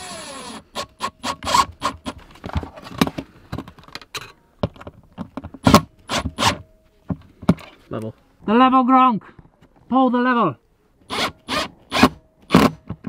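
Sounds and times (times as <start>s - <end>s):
drill-driver running: 0.0s - 2.0s, 11.1s - 12.7s
clicks and knocks of handling: 2.2s - 5.6s.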